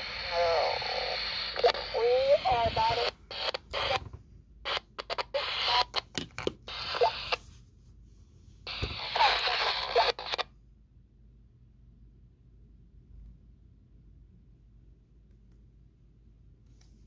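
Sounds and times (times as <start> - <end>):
walkie-talkie static bursts: 0.0 - 4.1, 4.7 - 6.1, 6.7 - 7.4, 8.7 - 10.5
garbled radio voice: 0.1 - 4.1, 4.7 - 6.1, 6.7 - 7.4, 8.7 - 10.4.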